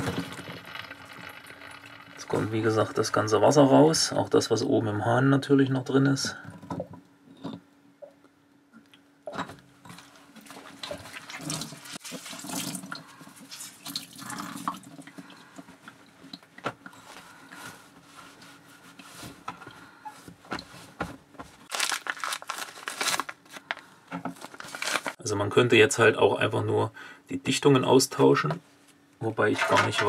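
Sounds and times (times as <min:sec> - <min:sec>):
water trickling and splashing: 0:10.4 - 0:15.6
cloth wiping rustle: 0:17.0 - 0:19.5.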